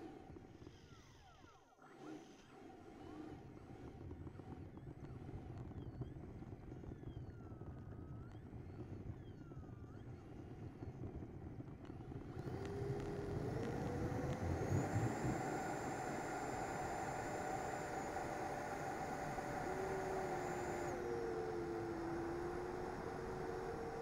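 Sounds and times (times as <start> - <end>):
electric ducted-fan motor whining: 12.0 - 24.0.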